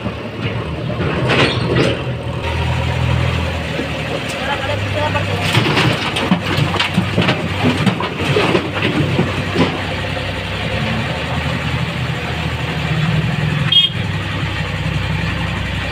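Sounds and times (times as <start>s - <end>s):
diesel engine running: 0.0s - 15.9s
rubble clattering into steel trolley: 0.4s - 2.2s, 4.2s - 10.1s.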